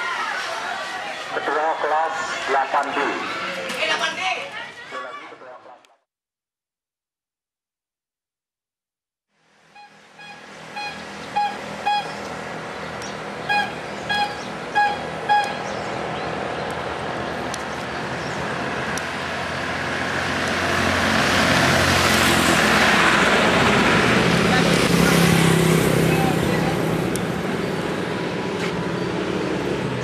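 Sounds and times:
traffic road noise: 0.0 - 5.8, 9.3 - 30.0
vehicle horn short beeps: 9.8 - 12.2.

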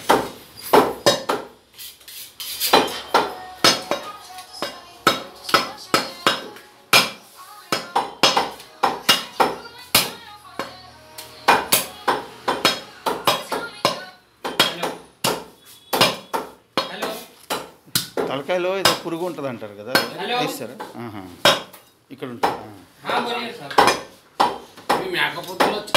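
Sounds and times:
cleaver chopping on wooden block: 2.7 - 10.7, 11.5 - 19.0, 23.7 - 25.9.

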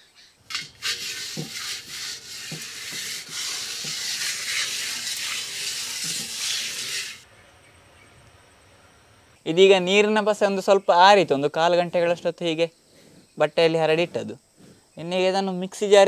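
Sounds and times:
hands scrubbing paste on metal: 0.5 - 7.2.

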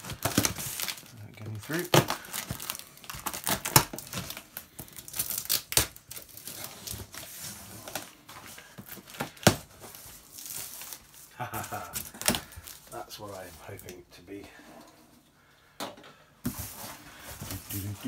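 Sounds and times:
packing tape ripping off box: 0.0 - 8.1.

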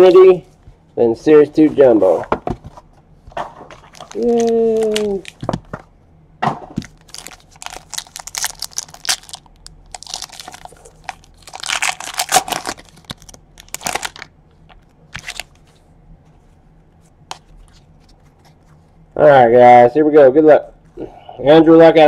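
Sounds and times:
foil wrapper tearing and crinkling: 3.8 - 5.6, 6.8 - 15.6.

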